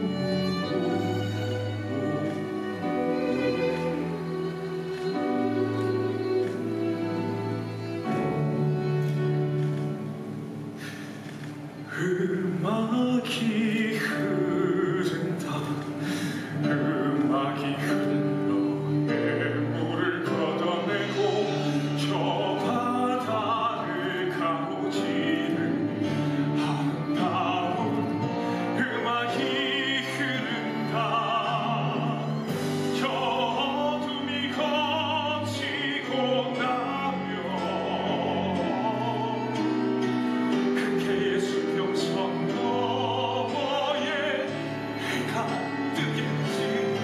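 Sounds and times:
instrumental accompaniment: 0.0 - 47.0
man singing ballad with vibrato: 11.8 - 47.0.

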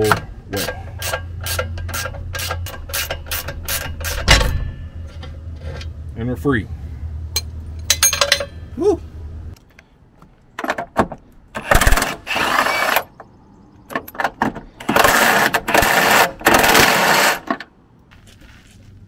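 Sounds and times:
power tool running on nut: 11.6 - 13.1, 14.8 - 17.5.

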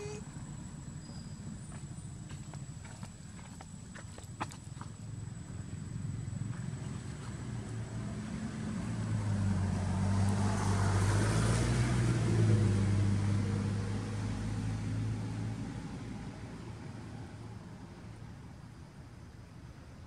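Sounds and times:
car driving past: 5.8 - 18.2.

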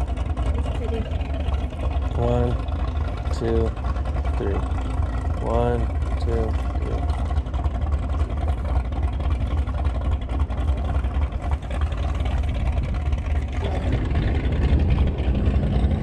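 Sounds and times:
wind buffeting microphone: 10.6 - 16.0.

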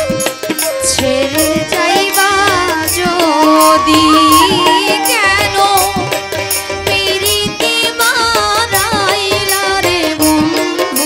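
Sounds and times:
wavering folk melody: 0.0 - 7.1.

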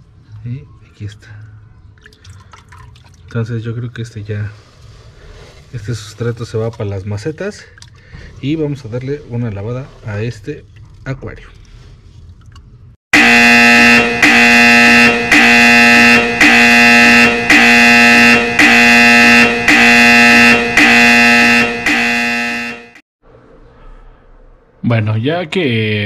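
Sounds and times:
pulsing electronic buzzing tone: 13.2 - 23.0.

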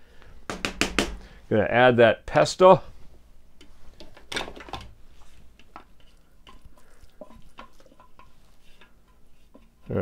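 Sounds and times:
spatula scraping bowl: 5.2 - 10.0.

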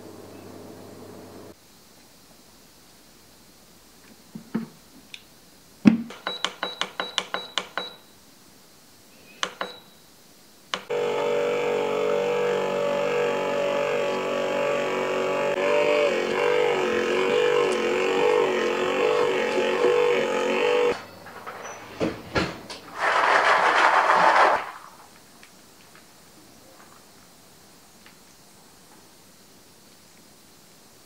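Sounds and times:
control panel beeping: 6.1 - 8.0, 9.4 - 9.9
kneading motor running: 10.8 - 21.0.

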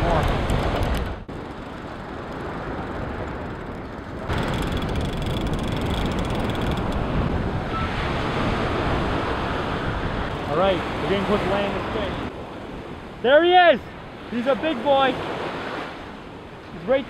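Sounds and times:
wind buffeting microphone: 0.0 - 13.2
fishing reel ticking: 3.4 - 7.0
surf: 7.0 - 17.0.

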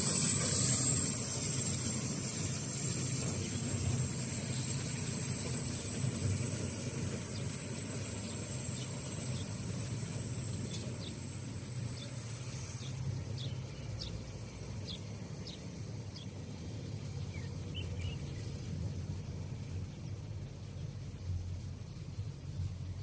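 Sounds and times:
steady low rumble: 0.0 - 23.0
birds chirping: 3.2 - 19.0.

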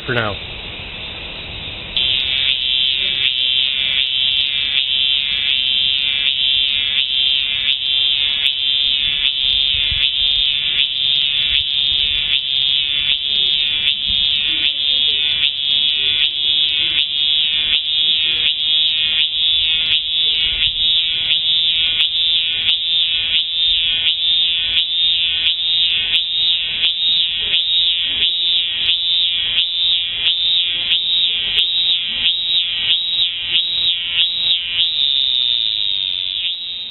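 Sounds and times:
cicada buzzing: 0.0 - 36.9.

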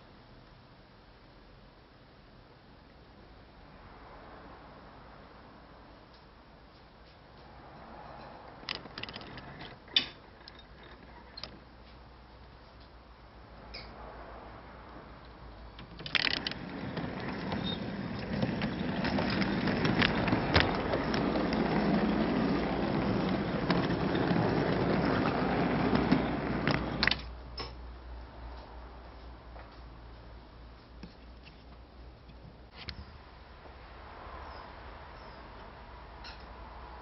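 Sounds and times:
clicks over rail joints: 8.2 - 12.0, 15.7 - 27.7
model train rolling rumble: 8.6 - 11.5, 15.8 - 27.3
model train clatter: 8.6 - 11.6, 15.8 - 27.3.

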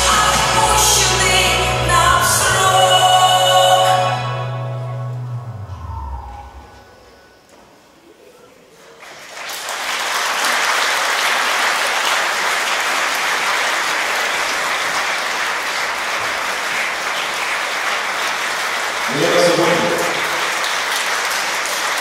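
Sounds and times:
audience applauding: 8.8 - 22.0.

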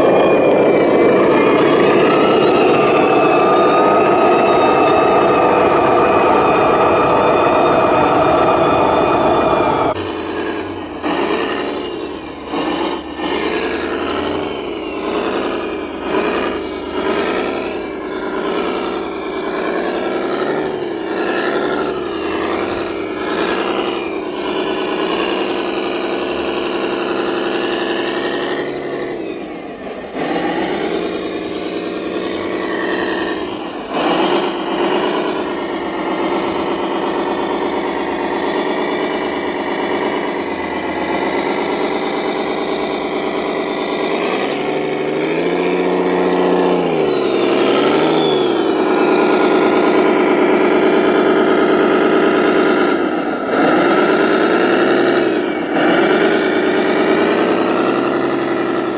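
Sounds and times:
radio-controlled truck motors: 0.0 - 58.9.

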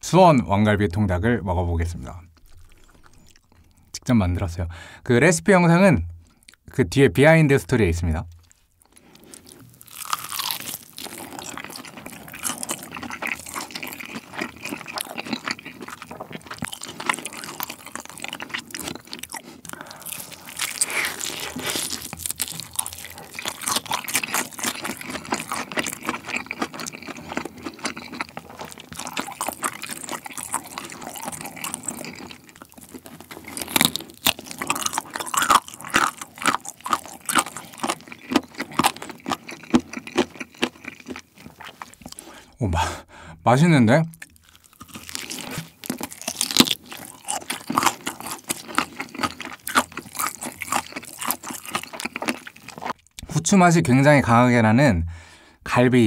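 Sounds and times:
crunching fried chicken: 8.4 - 42.4, 44.2 - 53.2.

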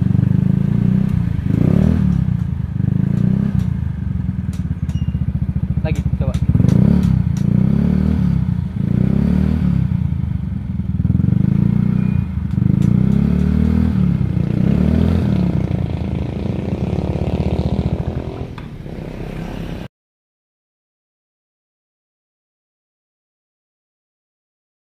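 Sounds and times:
scooter engine revving: 0.0 - 19.9.

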